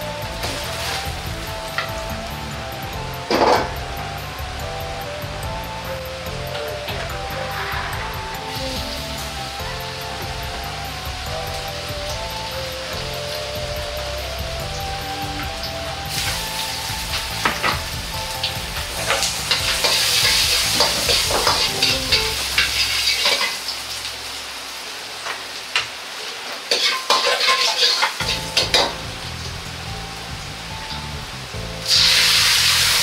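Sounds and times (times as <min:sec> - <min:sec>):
food sizzling in a hot wok: 0:00.0 - 0:33.0
ladle scraping a wok: 0:26.7 - 0:28.2.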